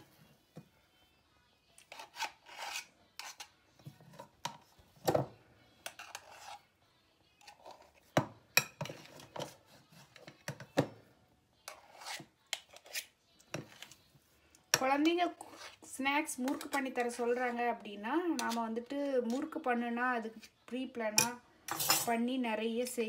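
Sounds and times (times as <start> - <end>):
spoon scraping dough from bowl: 1.8 - 4.7, 5.8 - 6.7, 7.4 - 10.3, 11.7 - 14.0, 15.2 - 15.9.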